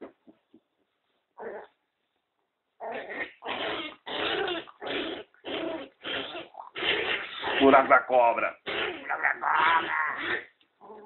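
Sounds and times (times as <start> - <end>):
puppy growling: 1.4 - 1.8, 2.8 - 7.9, 8.6 - 11.0.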